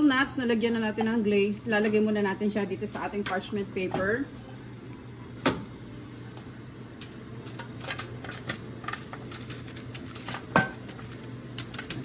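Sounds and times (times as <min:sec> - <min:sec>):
walnuts clicking onto paper: 0:08.9 - 0:12.0.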